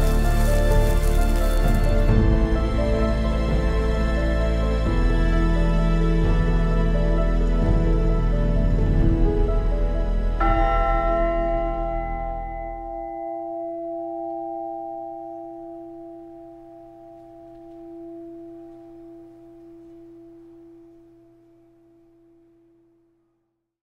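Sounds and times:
church bell ringing: 10.4 - 21.1.

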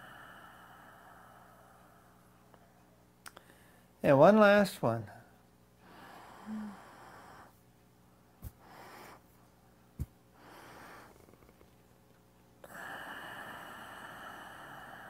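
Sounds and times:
man inhaling through nose: 0.0 - 2.0, 10.4 - 11.5.

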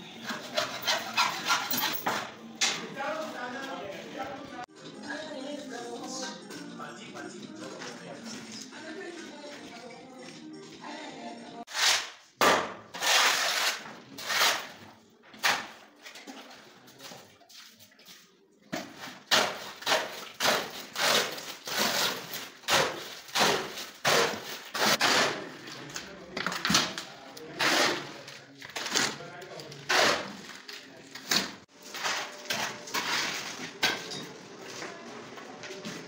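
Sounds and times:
shovel scraping wet concrete: 13.0 - 14.7.

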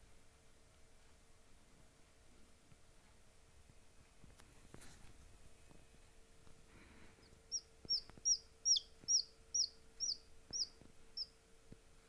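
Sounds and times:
chick peeping: 7.0 - 11.4.

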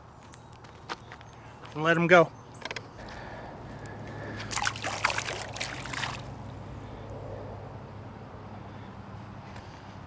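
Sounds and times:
small water splashes: 4.4 - 6.4
trickling water: 4.4 - 6.4.

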